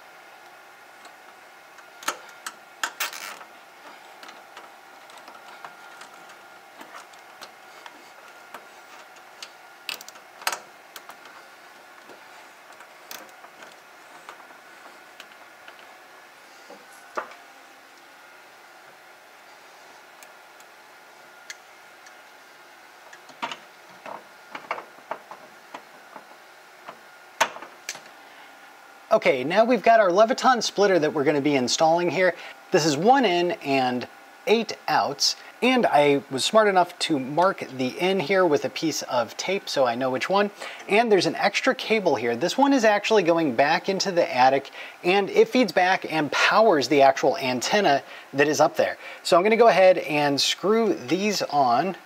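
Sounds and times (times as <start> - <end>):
cable handling: 1.0 - 18.2.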